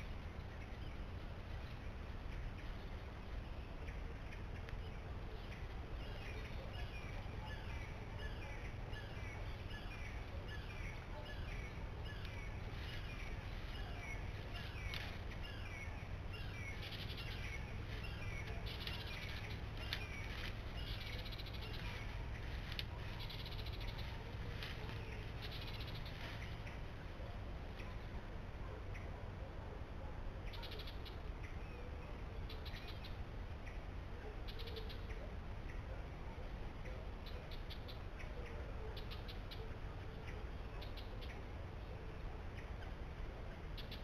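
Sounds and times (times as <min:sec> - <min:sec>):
low background noise: 0:00.0 - 0:44.0
scratchy bird calls: 0:09.0 - 0:26.9.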